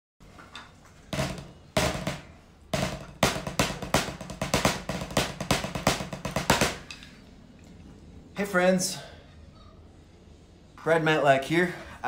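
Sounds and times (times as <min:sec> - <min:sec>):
drumsticks striking practice pad: 0:01.1 - 0:07.0.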